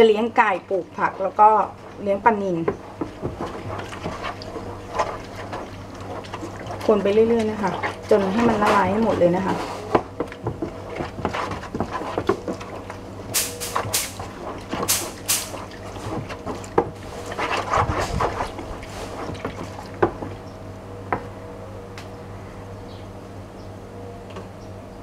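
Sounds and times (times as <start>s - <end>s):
liquid sloshing and splashing: 0.0s - 20.4s
spatula knocking plastic basin: 2.6s - 4.4s, 9.9s - 12.7s.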